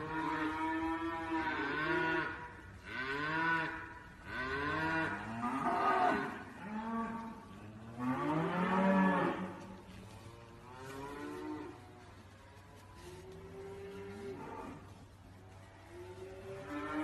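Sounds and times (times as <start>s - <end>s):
calves mooing: 0.0s - 12.0s.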